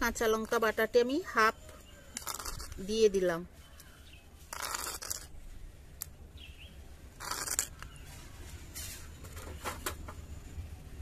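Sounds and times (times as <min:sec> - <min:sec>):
metal spoon scraping bowl: 0:02.1 - 0:03.2, 0:04.5 - 0:05.3, 0:07.2 - 0:08.0.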